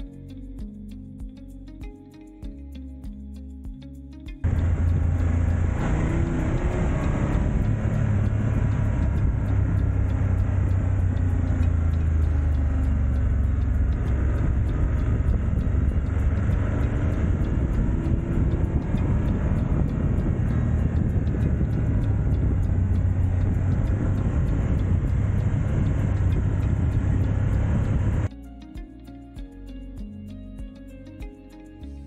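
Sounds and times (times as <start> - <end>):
motorcycle engine running: 4.4 - 28.3
wind over microphone: 4.4 - 28.3.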